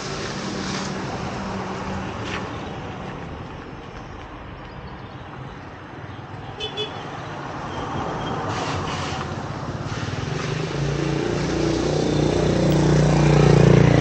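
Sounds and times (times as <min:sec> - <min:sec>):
motorcycle engine passing: 0:10.3 - 0:14.0.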